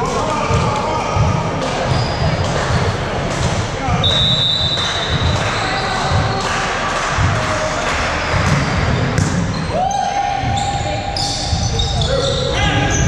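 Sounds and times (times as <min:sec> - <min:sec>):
referee's whistle blast: 0:04.0 - 0:05.9
volleyball bouncing on wooden floor: 0:08.3 - 0:09.6.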